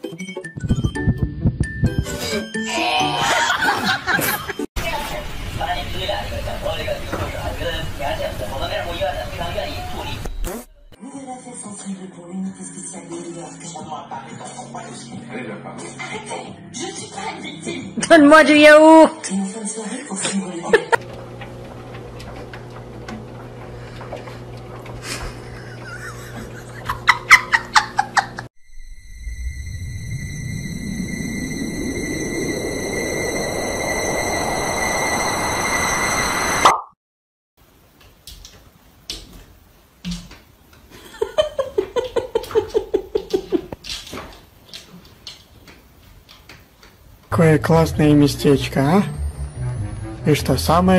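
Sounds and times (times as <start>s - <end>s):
person laughing: 2.8s - 4.6s, 20.7s - 21.0s, 25.0s - 28.5s, 40.9s - 43.8s
person giggling: 3.0s - 4.6s, 25.0s - 28.5s, 40.9s - 43.8s
steady low hum: 47.2s - 50.9s.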